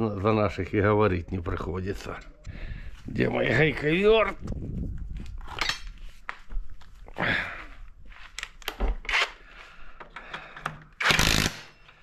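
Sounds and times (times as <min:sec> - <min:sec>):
footsteps scuffing on dirt: 0:04.4 - 0:08.4.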